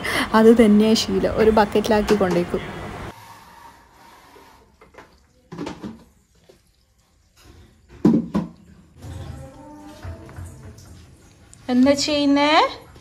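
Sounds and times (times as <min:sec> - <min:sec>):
plastic bucket knocking on counter: 0:05.5 - 0:06.1, 0:07.9 - 0:09.3.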